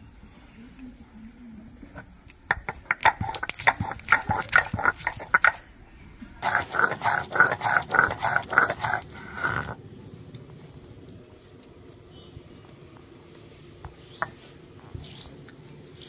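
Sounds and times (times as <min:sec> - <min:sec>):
stone roller rasping on stone slab: 0:02.6 - 0:05.6, 0:06.4 - 0:09.7.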